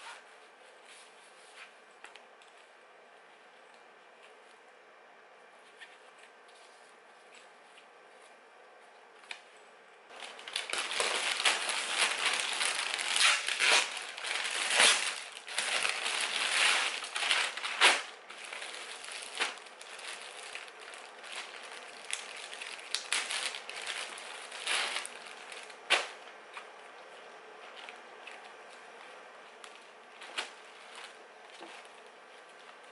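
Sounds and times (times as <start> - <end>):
plastic packaging crinkling: 10.1 - 27.0, 27.6 - 32.9.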